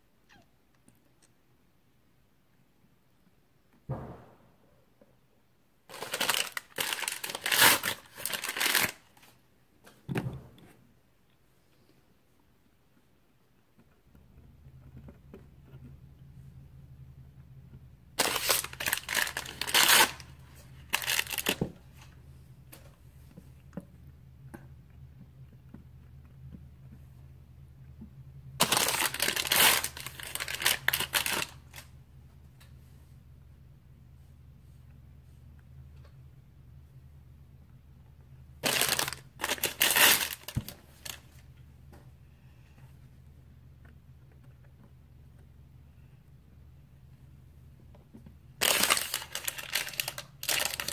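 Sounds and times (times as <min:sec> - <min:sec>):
low steady hum: 0:00.0 - 0:50.9
foil wrapper crinkling: 0:05.9 - 0:09.3, 0:18.2 - 0:21.6, 0:28.6 - 0:31.9, 0:38.6 - 0:41.4, 0:48.6 - 0:50.9.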